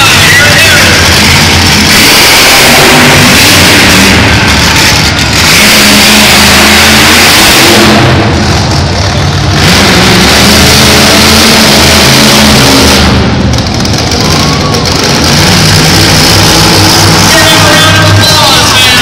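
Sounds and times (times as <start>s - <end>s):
monster truck engine revving: 0.0s - 19.0s.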